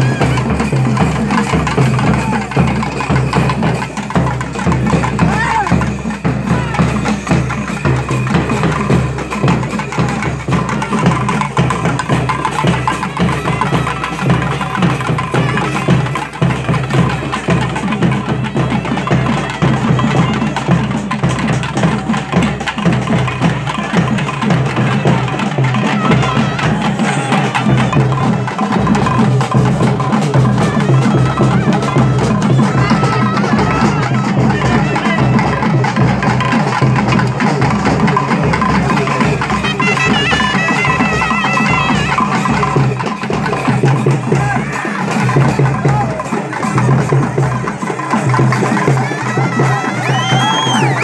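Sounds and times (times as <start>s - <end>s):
crowd voices: 0.0s - 51.0s
festival percussion music: 0.0s - 51.0s.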